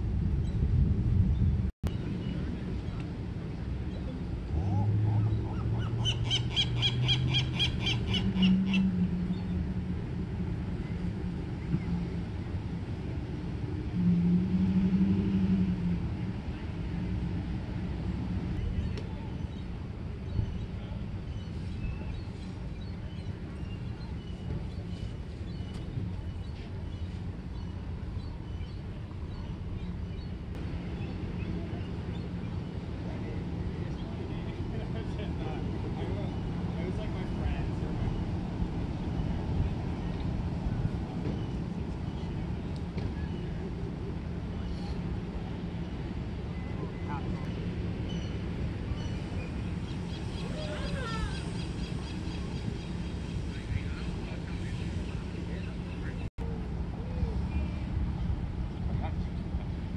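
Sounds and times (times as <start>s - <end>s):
low rumble with faint hum: 0.0s - 59.9s
seagull calling: 4.7s - 8.9s, 49.9s - 52.9s.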